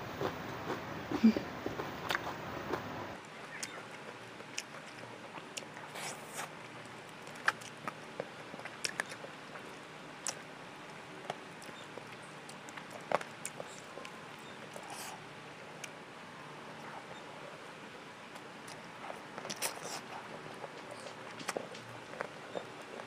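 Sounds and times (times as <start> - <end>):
steady low hiss: 0.0 - 3.4
wet lip smacks and clicks: 8.6 - 9.6.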